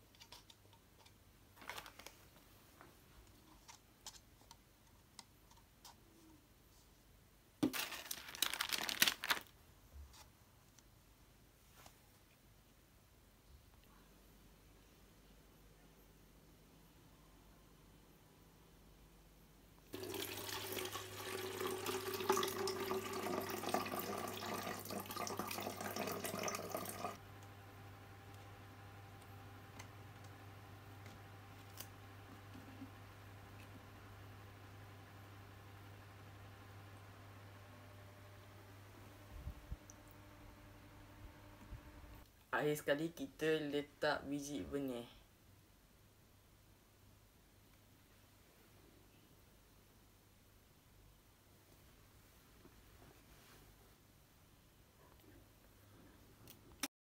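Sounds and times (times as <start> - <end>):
faint room hum: 0.0 - 56.9
plastic bottle crinkling: 1.5 - 2.3, 7.6 - 9.5
water pouring into plastic bottle: 20.0 - 27.2.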